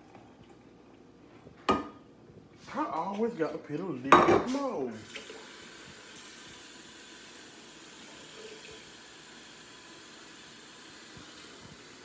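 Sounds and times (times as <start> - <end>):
water pouring into a cup: 5.0 - 12.0.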